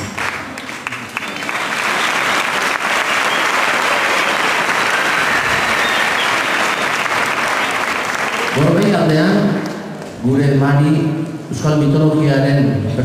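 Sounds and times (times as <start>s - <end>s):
audience applause: 0.0s - 10.1s.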